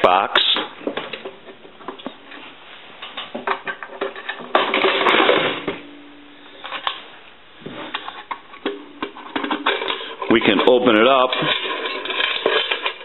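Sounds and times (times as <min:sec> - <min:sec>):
coin box scraping clatter: 0:09.2 - 0:13.0.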